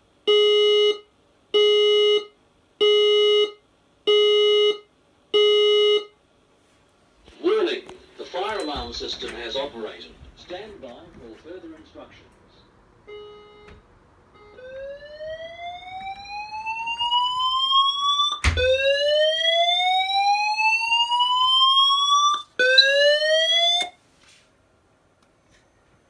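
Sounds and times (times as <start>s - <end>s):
fire alarm whooping tone: 14.4s - 24.0s.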